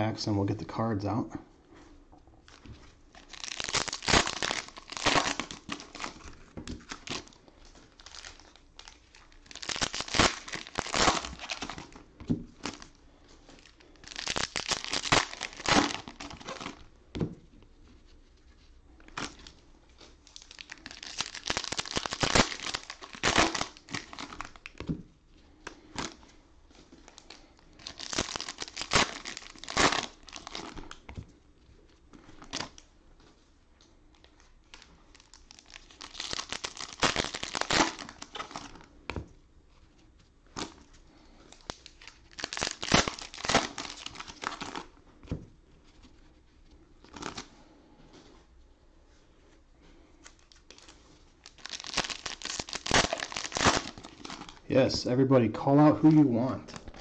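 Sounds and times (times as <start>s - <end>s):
cellophane wrappers crinkling: 2.4s - 16.9s, 18.2s - 39.0s, 39.7s - 45.0s, 45.8s - 47.6s, 50.1s - 54.7s.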